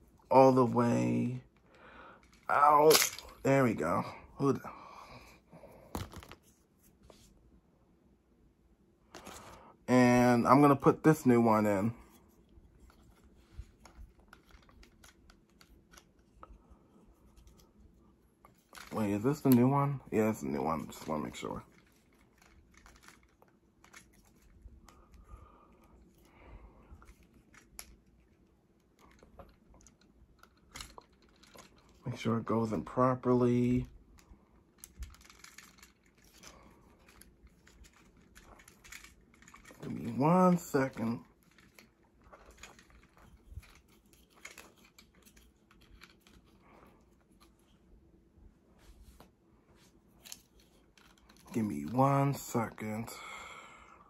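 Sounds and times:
plastic parts clicking and scraping: 1.6 - 3.5, 12.0 - 17.8, 18.4 - 26.3, 26.9 - 32.1, 33.6 - 47.8, 50.1 - 52.5
plastic toy parts clicking: 2.2 - 3.4, 21.7 - 24.5, 29.0 - 32.0, 34.2 - 39.9, 40.6 - 46.5.

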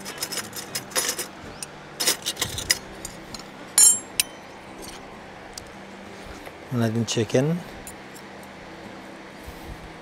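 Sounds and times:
cutlery clinking against dish: 2.0 - 5.0.

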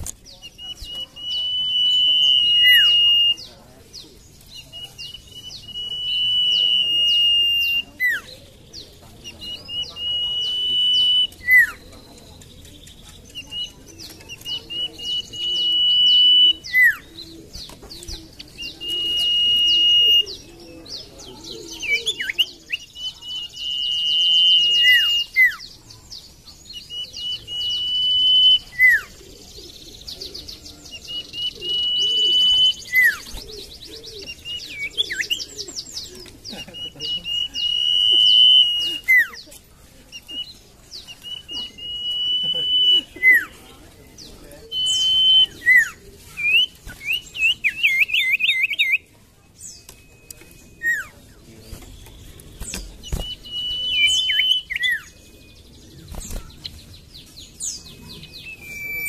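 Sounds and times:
bird chirps and twittering: 0.0 - 59.0
bird whistling song: 0.2 - 39.5, 40.1 - 59.0.

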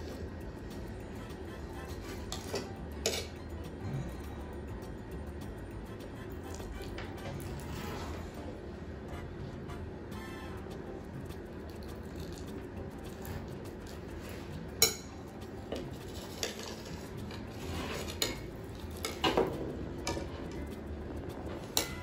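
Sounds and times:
metal server clinking on plate: 2.3 - 3.4.

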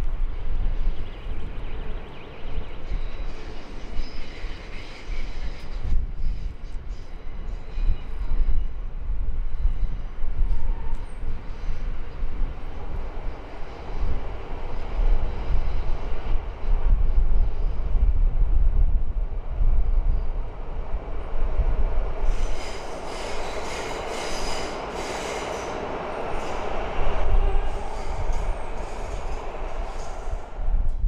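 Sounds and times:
electric train rumbling past: 0.0 - 31.0.

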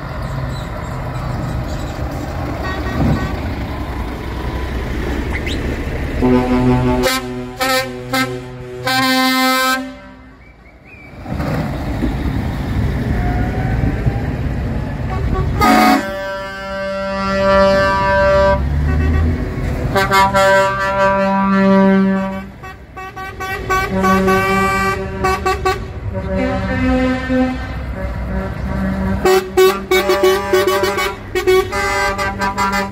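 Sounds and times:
diesel engines rumbling: 0.0 - 32.9
truck air horn blasts: 2.6 - 3.6, 6.2 - 10.6, 15.1 - 32.9.

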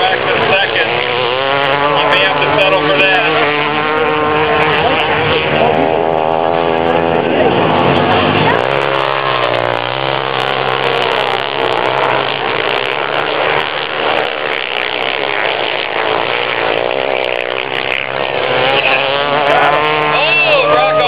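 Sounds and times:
dirt bike engines revving: 0.0 - 21.0.

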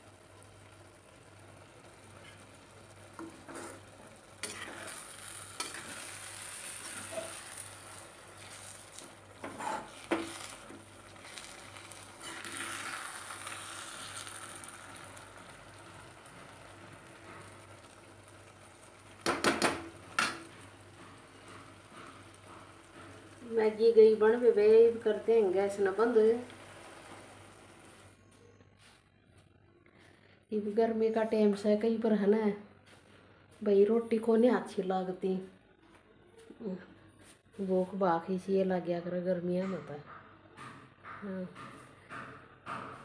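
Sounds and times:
noodles sizzling: 0.0 - 28.2
metal spoon scraping pan: 3.2 - 8.8, 9.4 - 10.6, 11.2 - 14.5
spoon knocking on pan: 19.2 - 20.6.

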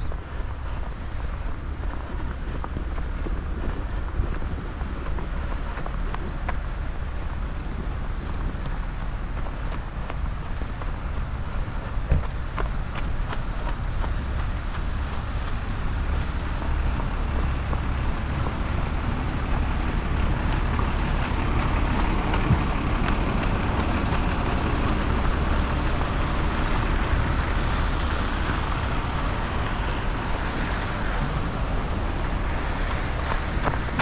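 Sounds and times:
passing vehicle tyres and engine: 0.0 - 34.0
wind rumble on microphone: 0.0 - 34.0.

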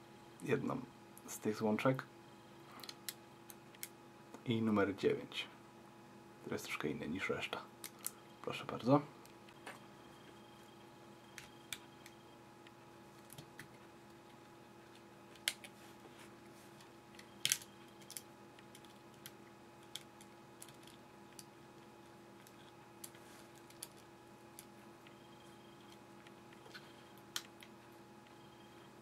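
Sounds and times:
faint steady hum: 0.0 - 29.0.

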